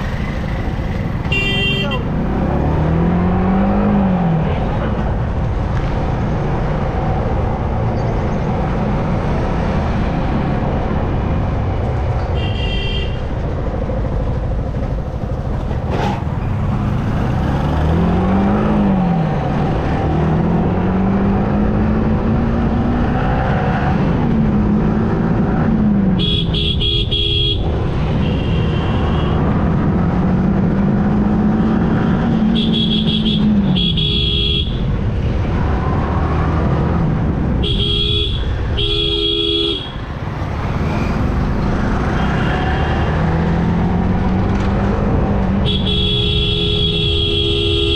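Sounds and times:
vehicle horn honking: 1.2s - 2.1s, 12.4s - 13.2s, 26.2s - 29.4s, 32.6s - 34.8s, 37.6s - 40.0s, 45.6s - 47.9s.

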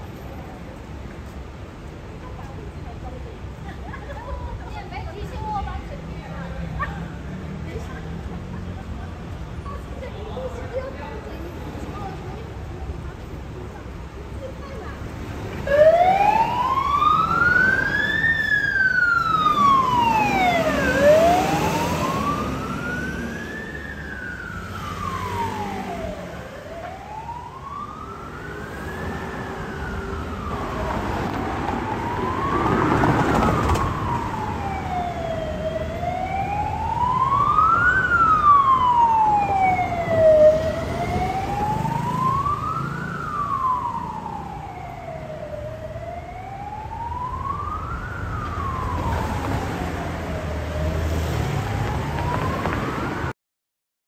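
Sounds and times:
fire engine siren wailing: 15.6s - 53.3s.

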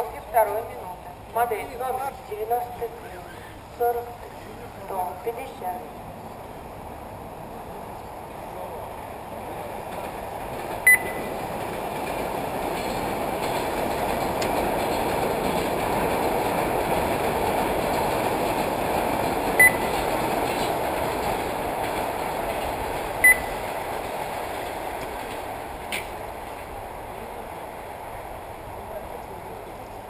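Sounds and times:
short electronic beeps: 10.9s - 11.3s, 19.6s - 19.9s, 23.2s - 23.6s.

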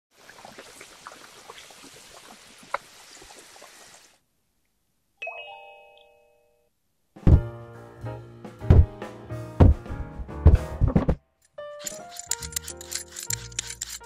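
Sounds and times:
bright chime: 5.2s - 6.7s.

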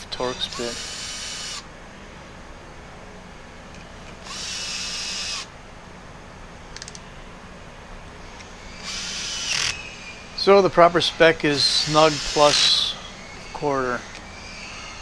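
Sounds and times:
cordless drill motor whine: 0.1s - 1.6s, 4.2s - 5.5s, 8.2s - 15.0s.

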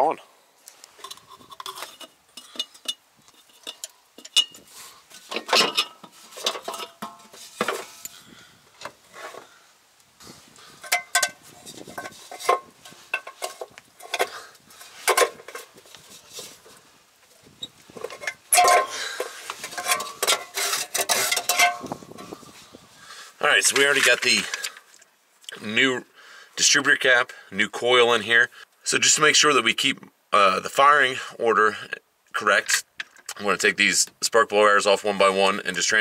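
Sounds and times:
metal clinks and scraping: 0.9s - 9.4s, 10.7s - 16.8s, 17.6s - 22.6s.

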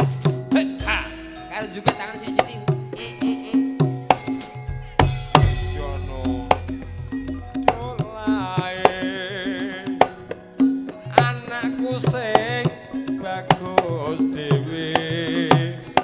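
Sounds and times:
gamelan music: 0.0s - 16.0s
hand drum strokes: 0.0s - 16.0s
wavering sliding melody: 0.6s - 10.2s.

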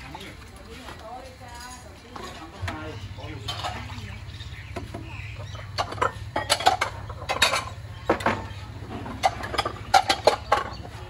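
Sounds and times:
metal utensils clinking on pot: 1.2s - 4.2s, 5.5s - 11.0s
steady low hum: 2.5s - 11.0s.

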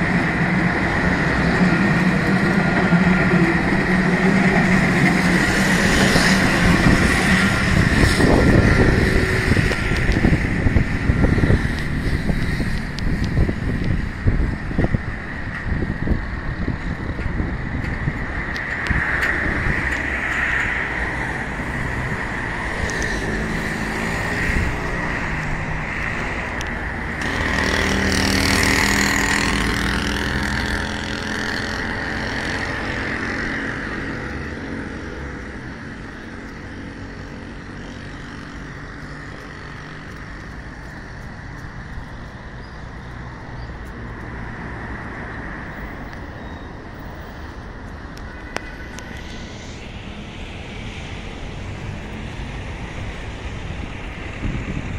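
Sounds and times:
traffic background: 0.0s - 54.9s
car passing by: 18.8s - 42.2s.

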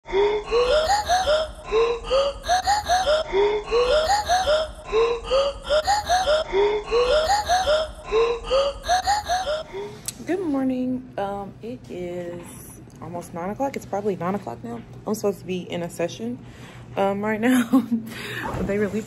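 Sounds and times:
looped voice-like synth notes: 0.1s - 9.9s.

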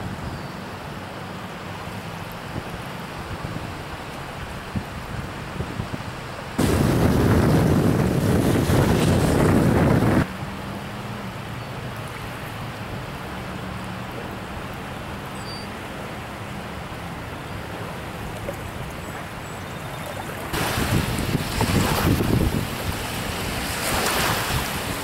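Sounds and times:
small waves lapping on shore: 0.0s - 25.0s
wind buffeting microphone: 4.4s - 10.3s, 20.5s - 25.0s.

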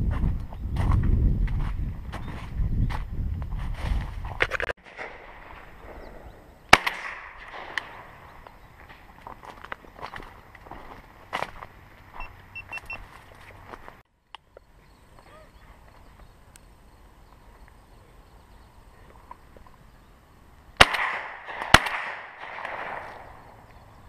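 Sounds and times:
shotgun shots with echo: 6.7s - 8.2s, 20.8s - 23.5s.

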